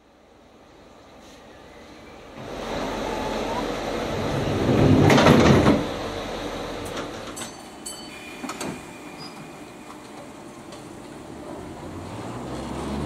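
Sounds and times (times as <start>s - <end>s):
electric train hissing: 1.2s - 5.0s, 5.8s - 12.4s.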